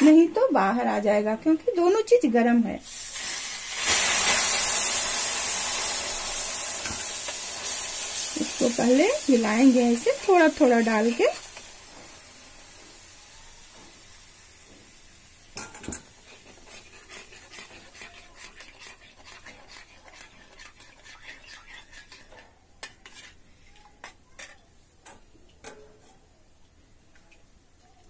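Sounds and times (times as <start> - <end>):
metal spatula scraping a pan: 15.6 - 24.6.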